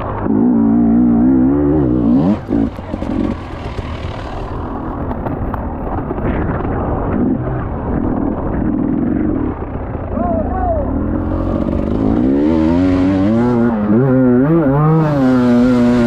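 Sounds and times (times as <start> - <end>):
motocross bike engine revving: 0.1 - 5.2, 10.9 - 16.0.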